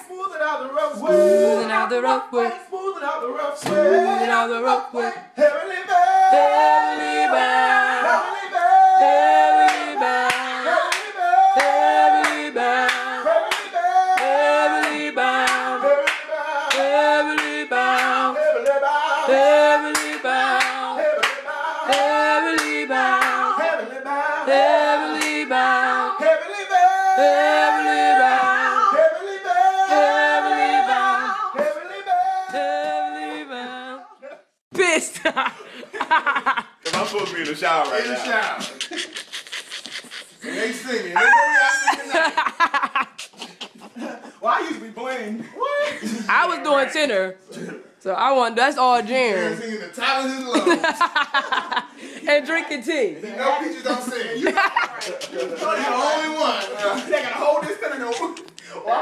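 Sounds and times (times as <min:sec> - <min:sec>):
people singing in harmony: 0:00.9 - 0:02.7, 0:03.6 - 0:34.3
hand claps: 0:09.7 - 0:18.8, 0:19.9 - 0:23.4, 0:36.8 - 0:40.1, 0:54.8 - 0:55.8, 0:56.4 - 0:57.4, 0:58.0 - 0:58.7.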